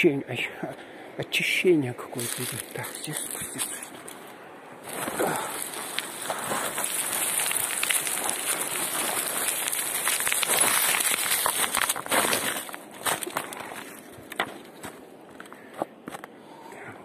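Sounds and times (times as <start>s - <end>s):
footsteps crunching on stones: 2.2s - 16.3s.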